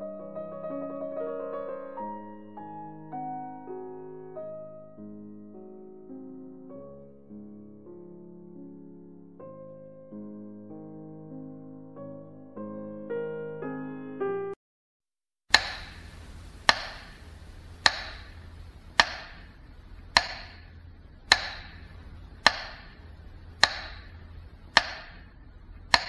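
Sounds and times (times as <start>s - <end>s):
sharp ringing knocks: 15.5s - 16.1s, 16.7s - 17.2s, 17.8s - 18.4s, 19.0s - 19.5s, 20.1s - 23.0s, 23.6s - 26.0s.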